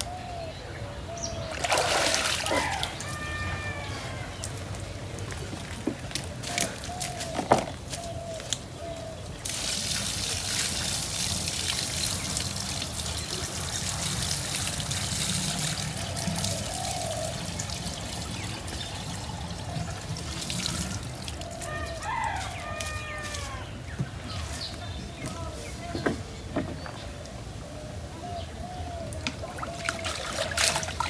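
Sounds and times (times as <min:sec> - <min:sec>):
water pouring from bucket: 0:01.6 - 0:02.9, 0:09.4 - 0:22.2, 0:29.9 - 0:31.0.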